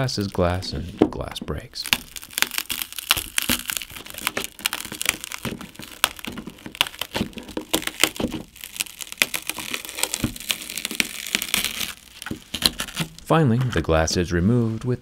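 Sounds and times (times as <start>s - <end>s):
shattered glass crackling and crunching: 1.8s - 13.3s.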